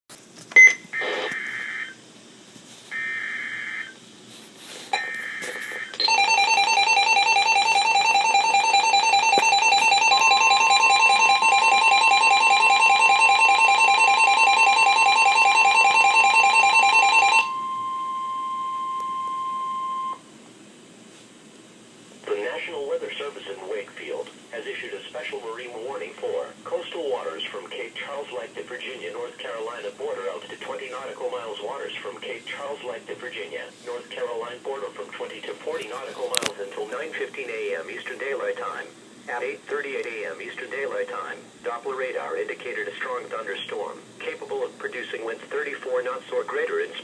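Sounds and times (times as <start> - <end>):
steady warning alarm tone: 0.6 - 2.0, 2.9 - 4.0, 4.9 - 20.2.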